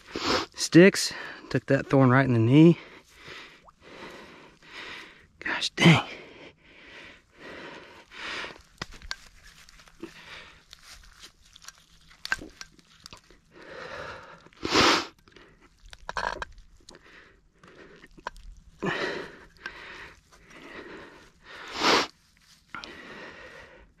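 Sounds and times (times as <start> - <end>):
dry grass crunching and rustling: 8.6 - 13.4, 22.1 - 22.8.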